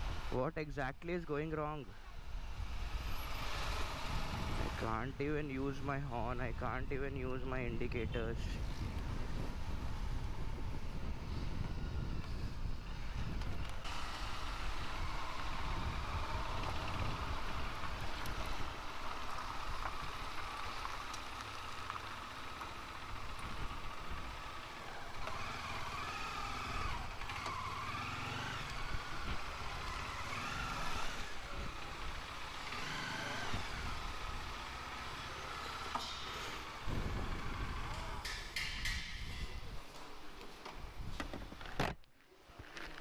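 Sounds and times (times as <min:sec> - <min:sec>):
wind on microphone: 0:07.6 - 0:14.0, 0:36.8 - 0:39.9
motorcycle engine running: 0:09.0 - 0:36.0.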